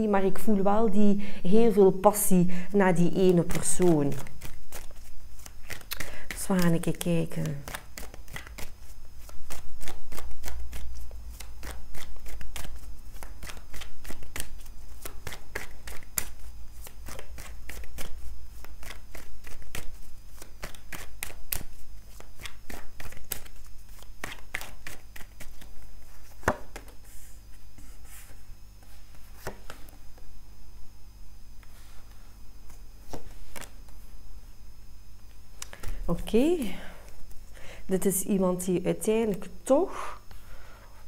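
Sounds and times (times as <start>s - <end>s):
cards shuffling clicks: 3.2s - 27.2s, 27.8s - 30.3s, 31.6s - 34.0s, 35.6s - 36.2s.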